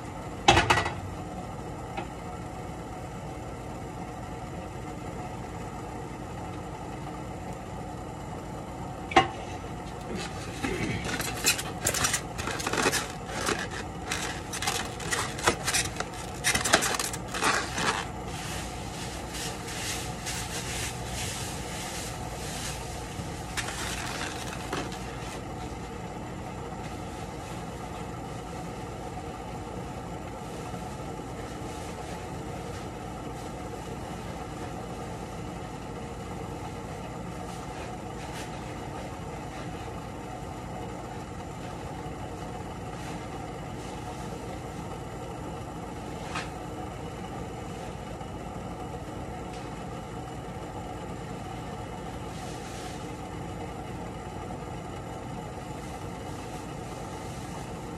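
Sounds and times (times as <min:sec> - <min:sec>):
steady low hum: 0:00.0 - 0:57.9
foam containers being stacked: 0:10.1 - 0:18.1
plastic bag crinkling: 0:10.1 - 0:21.1, 0:22.7 - 0:25.4.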